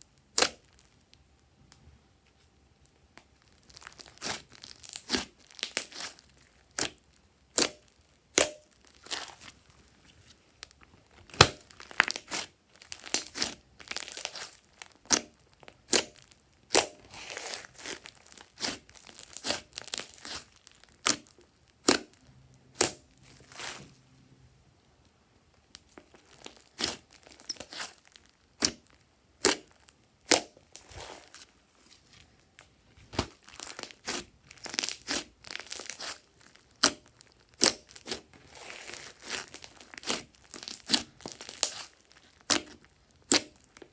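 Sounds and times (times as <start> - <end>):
soft crackling of slime: 0.0 - 43.9.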